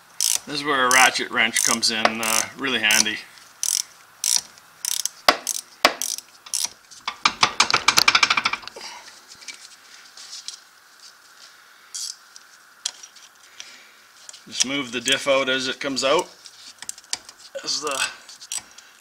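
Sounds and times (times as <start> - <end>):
ratchet wrench clicking: 0.2 - 8.7, 17.9 - 18.7.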